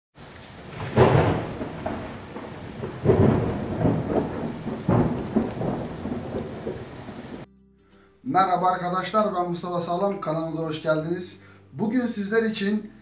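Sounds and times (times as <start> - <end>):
rain: 0.2 - 7.5
thunder rolling: 0.2 - 7.5.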